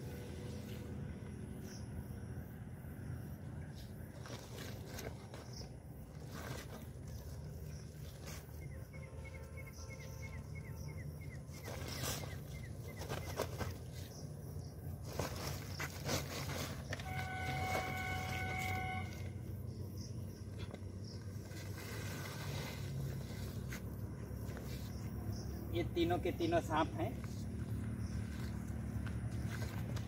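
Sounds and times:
bird chirping: 0:07.7 - 0:14.7
plastic sacks rustling: 0:15.0 - 0:19.0.

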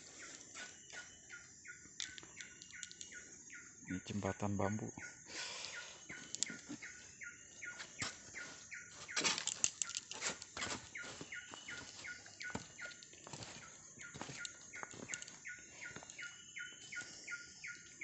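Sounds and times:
footsteps on bamboo and leaves: 0:00.0 - 0:01.5, 0:06.1 - 0:18.0
high falling chirp: 0:00.0 - 0:18.0.

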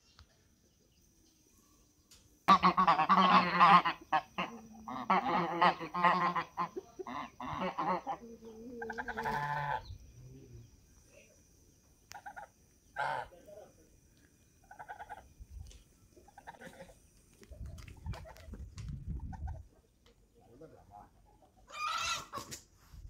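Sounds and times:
geese honking: 0:02.5 - 0:08.2, 0:08.8 - 0:09.8, 0:12.1 - 0:13.3, 0:21.7 - 0:22.4.

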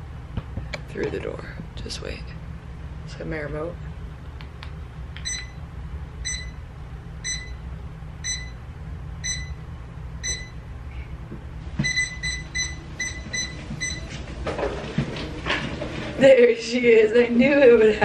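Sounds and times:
low steady hum: 0:00.0 - 0:18.0
treadmill beeps: 0:05.2 - 0:05.6, 0:06.2 - 0:06.6, 0:07.2 - 0:07.6, 0:08.2 - 0:08.6, 0:09.2 - 0:09.6, 0:10.2 - 0:10.6, 0:11.8 - 0:14.2.

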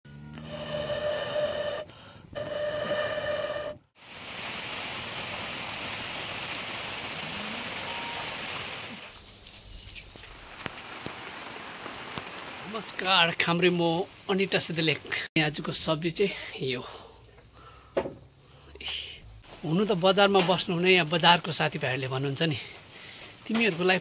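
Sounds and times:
rain falling: 0:03.9 - 0:14.8.

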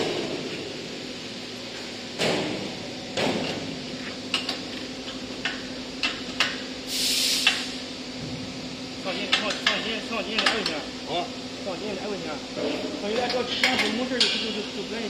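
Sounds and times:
steady low hum: 0:00.0 - 0:15.0
short hissing scrape: 0:06.9 - 0:07.8.

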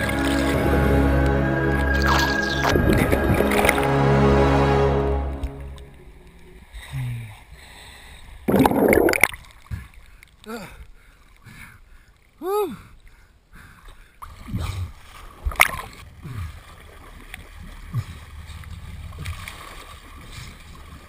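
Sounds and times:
sharp splash: 0:00.0 - 0:06.8
seawater sloshing and splashing: 0:14.3 - 0:21.0.

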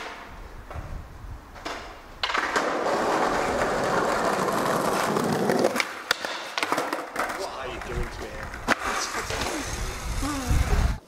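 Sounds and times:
skateboard clack: 0:00.0 - 0:00.9, 0:01.5 - 0:10.1
skateboard wheels rolling on concrete: 0:00.0 - 0:11.0.

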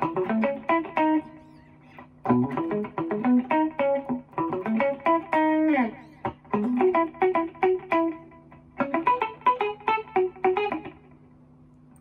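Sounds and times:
clean electric guitar melody: 0:00.0 - 0:11.4.

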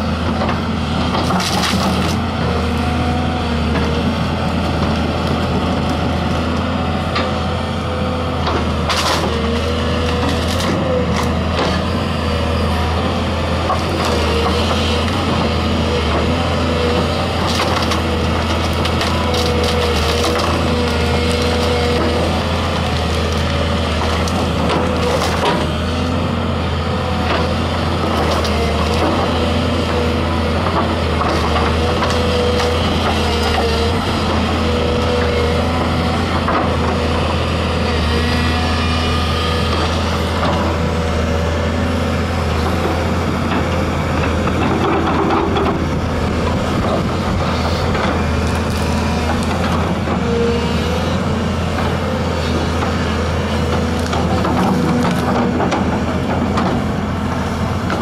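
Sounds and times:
excavator diesel engine running: 0:00.0 - 0:58.0
branches cracking and snapping: 0:01.2 - 0:02.2, 0:08.8 - 0:11.8, 0:16.6 - 0:26.2, 0:28.1 - 0:37.0, 0:46.2 - 0:49.8, 0:53.7 - 0:55.9.

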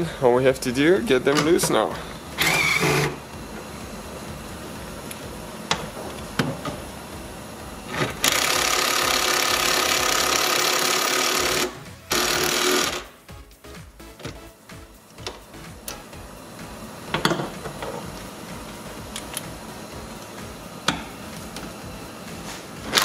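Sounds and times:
impact wrench hammering: 0:20.8 - 0:21.2.

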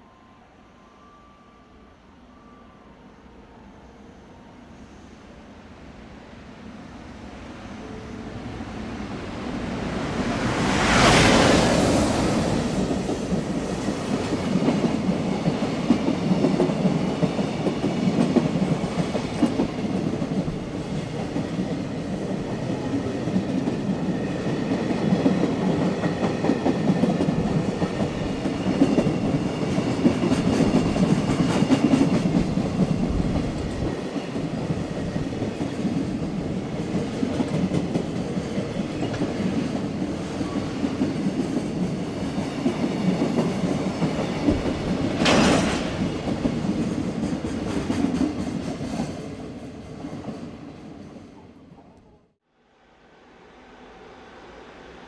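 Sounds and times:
freight train wheels clattering: 0:43.3 - 0:49.2.

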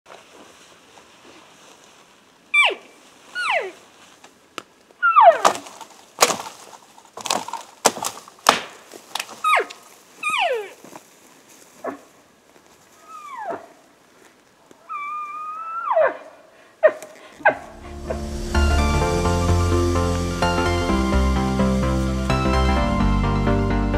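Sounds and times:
elk call squeals: 0:03.4 - 0:03.8
branches cracking and snapping: 0:04.0 - 0:11.6.

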